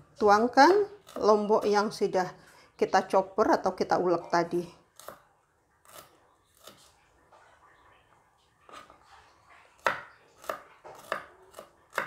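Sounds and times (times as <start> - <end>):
knife chopping on wooden board: 9.8 - 12.0.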